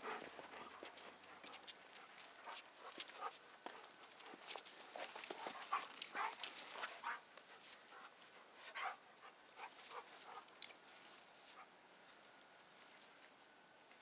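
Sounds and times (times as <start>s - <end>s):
dogs panting: 0.0s - 10.8s.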